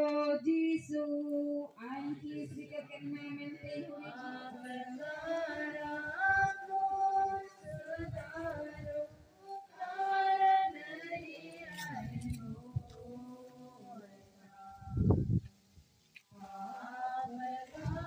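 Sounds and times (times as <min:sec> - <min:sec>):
worshippers singing a hymn: 0:00.0 - 0:18.0.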